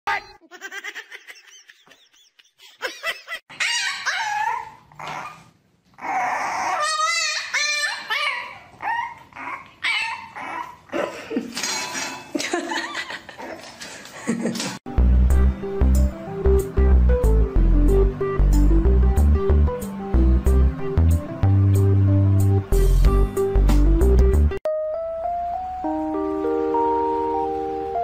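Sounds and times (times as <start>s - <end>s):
dogs whining and yipping: 3.5s - 11.0s.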